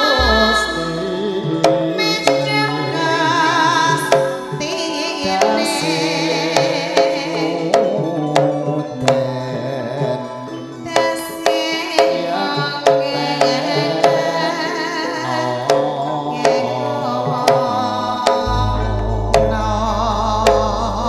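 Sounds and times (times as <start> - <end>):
hand drum strokes: 0.0 - 2.7, 17.4 - 21.0
woman singing: 0.0 - 8.9, 10.8 - 21.0
ringing metallophone tones: 0.0 - 21.0.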